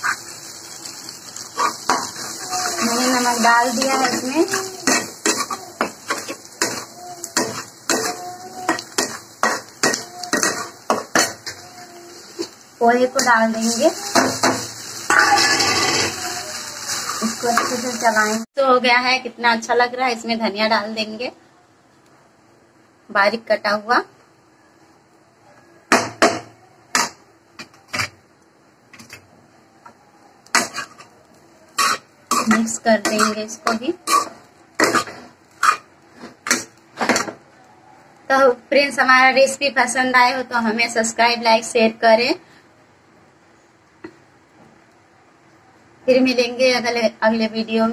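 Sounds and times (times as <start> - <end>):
oil sizzling: 0.0 - 18.5, 29.8 - 37.5
metal spatula scraping a pan: 1.4 - 18.3, 30.6 - 31.1, 31.8 - 36.8.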